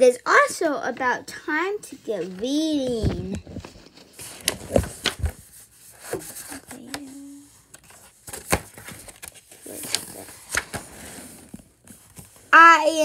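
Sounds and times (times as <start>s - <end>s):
paper rustling: 2.2s - 12.6s
book handling clicks and taps: 2.3s - 12.4s.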